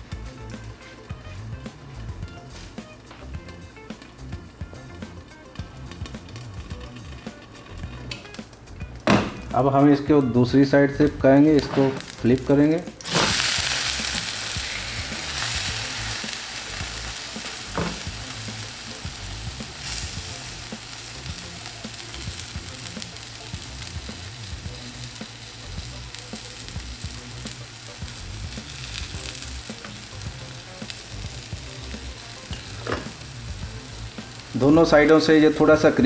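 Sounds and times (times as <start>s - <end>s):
omelette sizzling in a pan: 13.0s - 35.4s.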